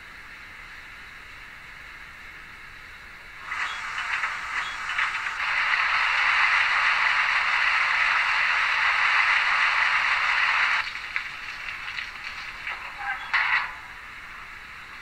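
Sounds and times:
rushing hiss of water filling: 3.4 - 13.0.

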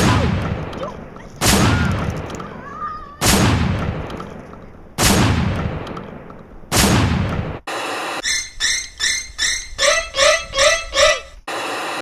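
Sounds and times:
echoing gunshots: 0.0 - 7.7.

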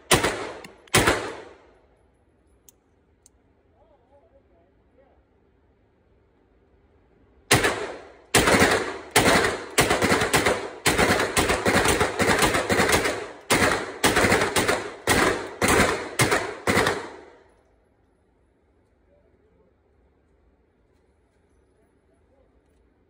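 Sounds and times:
gunshots echoing indoors: 0.0 - 1.8, 7.5 - 17.6.

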